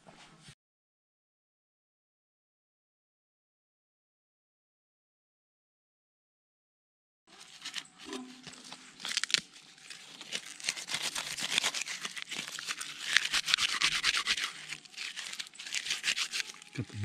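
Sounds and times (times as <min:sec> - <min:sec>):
bark tearing and crumpling: 0:07.3 - 0:16.9.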